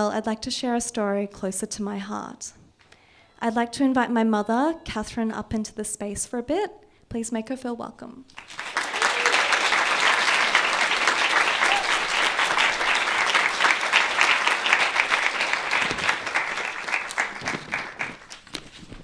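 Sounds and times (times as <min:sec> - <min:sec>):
audience applauding: 0:08.4 - 0:18.5.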